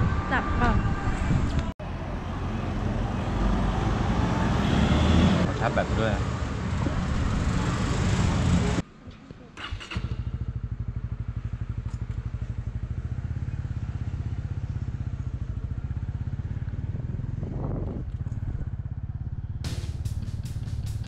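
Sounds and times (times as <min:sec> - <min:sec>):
motorcycle engine idling: 0:09.6 - 0:21.0
background music with guitar and drums: 0:19.7 - 0:21.0.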